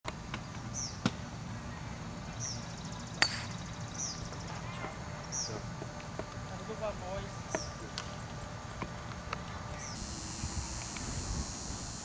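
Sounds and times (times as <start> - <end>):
bird chirping: 2.3 - 4.5
golf club striking ball: 3.2 - 3.6.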